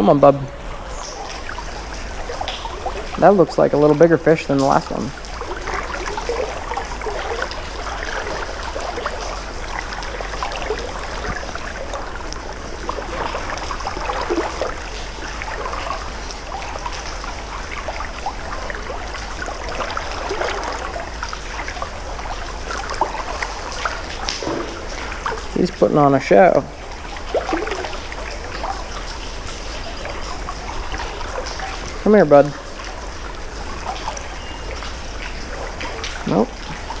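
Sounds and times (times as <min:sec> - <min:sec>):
creek water burbling: 0:00.0 - 0:37.0.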